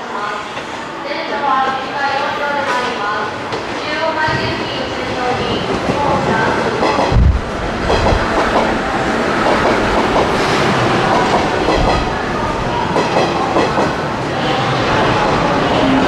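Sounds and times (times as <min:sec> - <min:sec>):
electric train rumbling past: 0:03.4 - 0:16.0.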